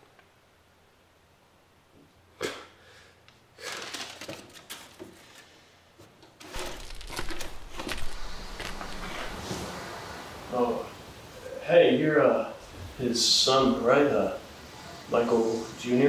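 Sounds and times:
rustling and small clattering: 0:03.5 - 0:09.9
low hum: 0:06.5 - 0:16.0.

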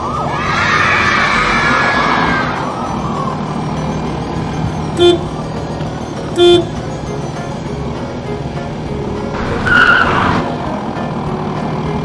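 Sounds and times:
background music: 0:00.0 - 0:12.0
low engine hum: 0:00.0 - 0:12.0
cartoon vehicle horn toots: 0:04.9 - 0:05.4, 0:06.3 - 0:06.8.

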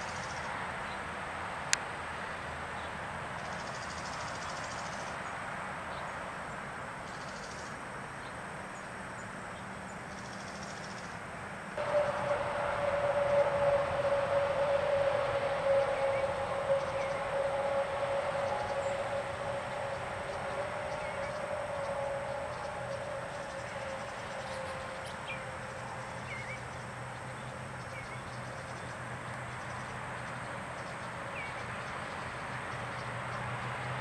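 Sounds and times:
outdoor background noise: 0:00.0 - 0:34.0
long steady tone: 0:11.8 - 0:34.0.

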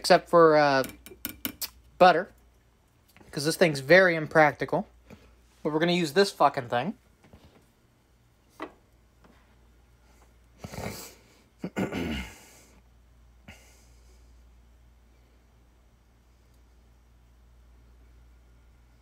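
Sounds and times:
person breathing: 0:13.4 - 0:15.6.

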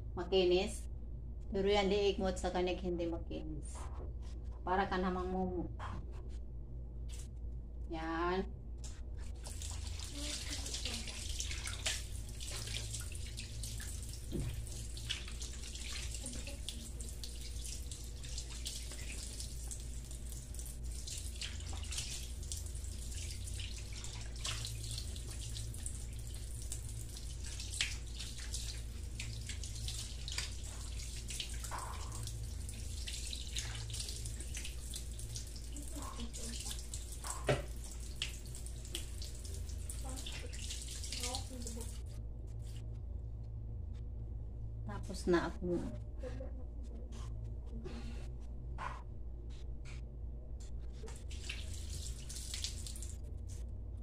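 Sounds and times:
low hum: 0:00.0 - 0:54.0
water splashing and dripping: 0:09.4 - 0:42.0, 0:51.1 - 0:53.2.

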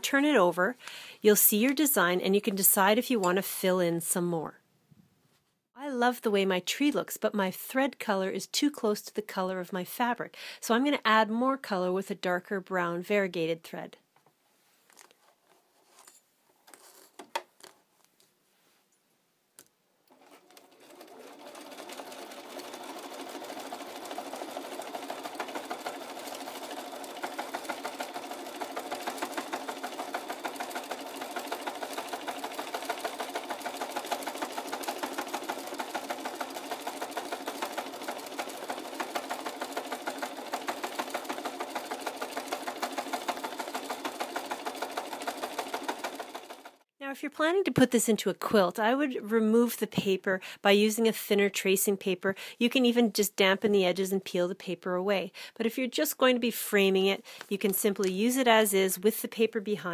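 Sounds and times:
sewing machine stitching: 0:20.1 - 0:46.9.

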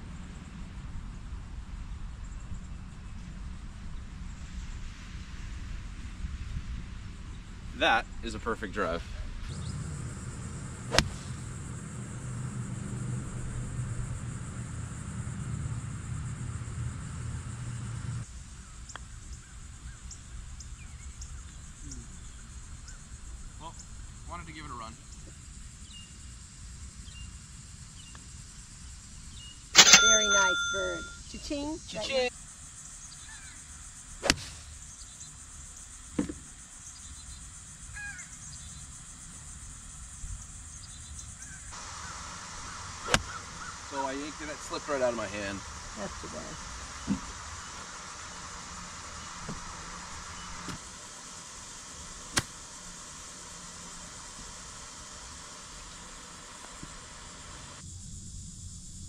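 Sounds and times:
steady low rumble: 0:00.0 - 0:18.6, 0:41.6 - 0:59.0
golf club striking ball: 0:10.8 - 0:12.6, 0:29.8 - 0:31.2, 0:34.2 - 0:34.6, 0:42.7 - 0:43.8, 0:52.2 - 0:52.6
birds calling: 0:29.3 - 0:39.0, 0:39.6 - 0:50.9
sharp click: 0:52.3 - 0:52.5.

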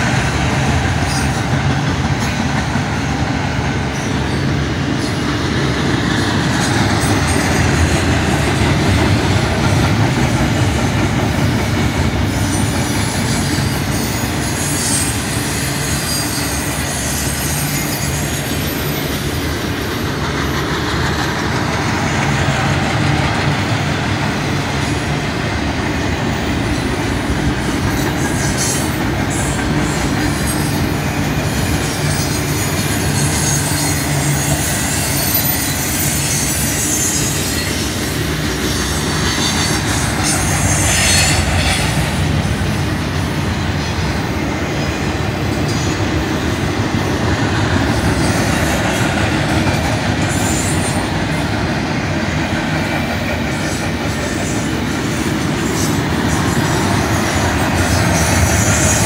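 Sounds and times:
freight train rolling past: 0:00.0 - 0:59.0
steel wheels rumbling on rails: 0:00.0 - 0:59.0
high wheel squeal: 0:12.3 - 0:19.9, 0:27.6 - 0:46.1, 0:47.8 - 0:51.6, 0:53.6 - 0:59.0.

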